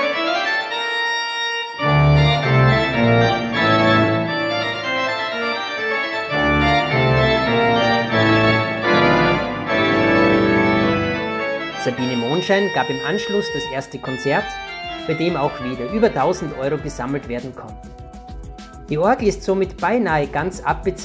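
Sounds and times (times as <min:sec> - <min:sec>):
church organ chords: 0:00.0 - 0:17.8.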